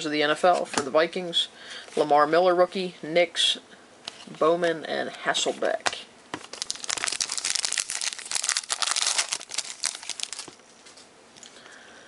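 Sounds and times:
card pack wrapper crinkling: 6.4s - 11.0s.

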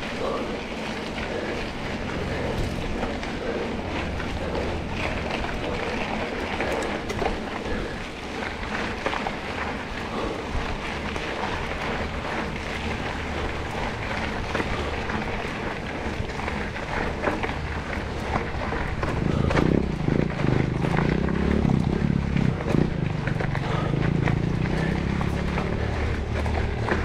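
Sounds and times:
off-road vehicle running: 0.0s - 27.0s
small clicks and spatters: 0.0s - 27.0s
wind buffeting microphone: 0.0s - 27.0s.

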